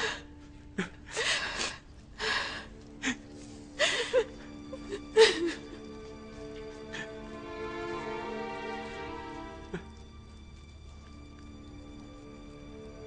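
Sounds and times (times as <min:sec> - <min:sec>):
soft background music: 0:00.0 - 0:13.0
person sobbing: 0:03.0 - 0:06.0.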